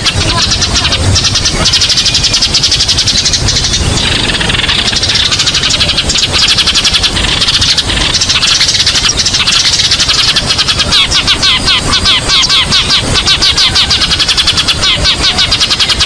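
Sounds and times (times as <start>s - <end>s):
low background rumble: 0.0s - 16.0s
sparrows chirping: 0.0s - 16.0s.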